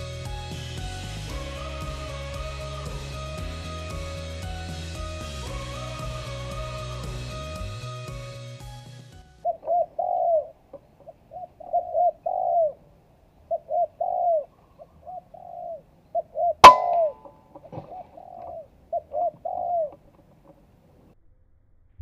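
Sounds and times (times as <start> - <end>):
dove cooing: 9.5 - 12.8, 13.5 - 20.0
sharp crack: 16.6 - 17.8.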